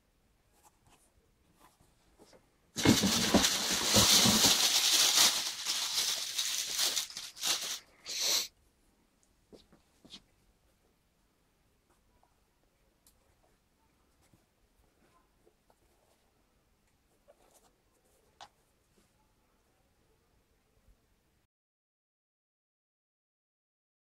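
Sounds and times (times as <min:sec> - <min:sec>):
packing paper rustling: 0:02.8 - 0:07.9.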